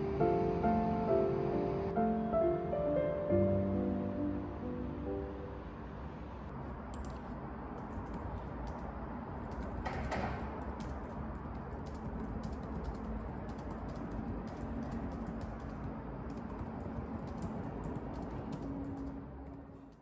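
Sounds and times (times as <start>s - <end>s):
laptop keyboard typing: 6.9s - 20.0s.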